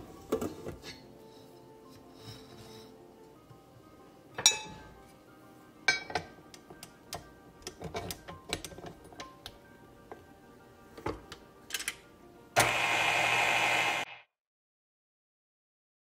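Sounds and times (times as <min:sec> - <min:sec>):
soft background music: 0:00.0 - 0:13.0
clinks on steel mixing bowl: 0:05.9 - 0:06.3.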